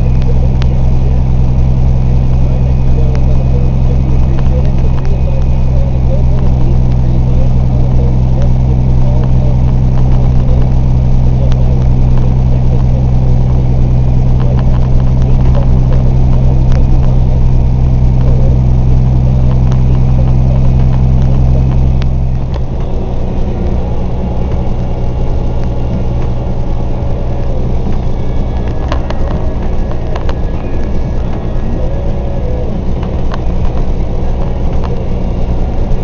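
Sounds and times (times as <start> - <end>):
truck engine droning: 0.0 - 36.0.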